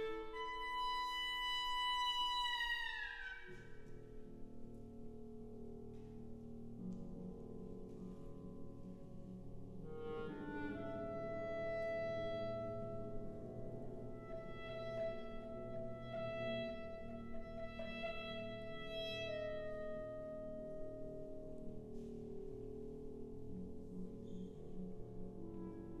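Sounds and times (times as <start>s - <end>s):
solo clarinet: 0.0s - 4.0s, 9.8s - 21.3s
wind band sustained chords: 9.8s - 20.0s.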